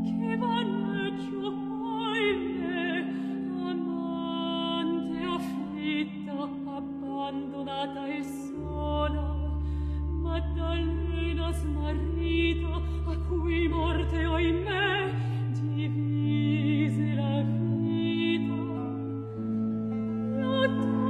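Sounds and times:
woman singing with vibrato: 0.0 - 21.0
held bass notes: 8.6 - 21.0.

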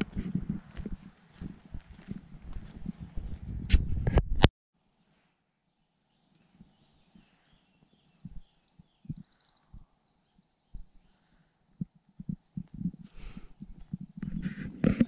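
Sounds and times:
footsteps on dirt: 0.0 - 3.9, 8.3 - 8.5, 10.7 - 11.1
faint birdsong: 5.0 - 15.0.

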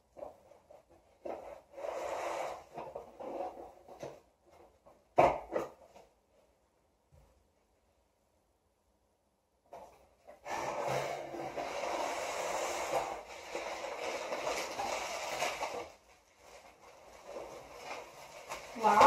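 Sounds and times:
bubble wrap and cardboard crinkling: 9.7 - 19.0.

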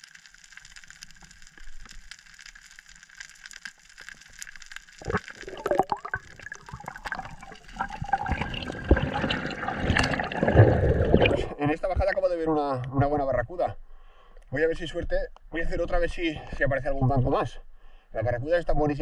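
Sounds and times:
underwater crackle of clicks: 0.0 - 11.4
splashing: 4.9 - 12.2
water rushing and gurgling: 5.0 - 12.2.

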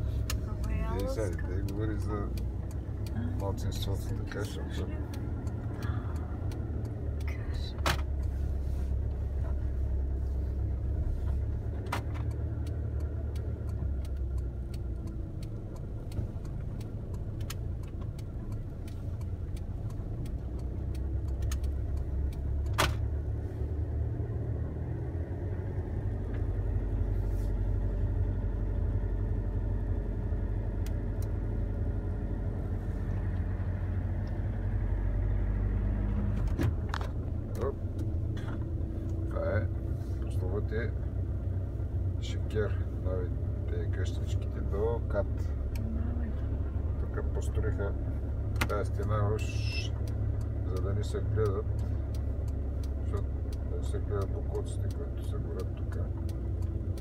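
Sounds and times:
car engine and road rumble: 0.0 - 57.0.

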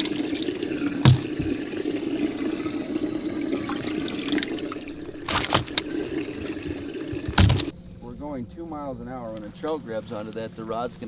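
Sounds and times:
water running and splashing: 0.0 - 7.7
steady low hum: 0.1 - 11.0
sharp knocks: 1.0 - 1.6, 7.1 - 7.7
thump: 1.0 - 1.6, 7.2 - 7.7.

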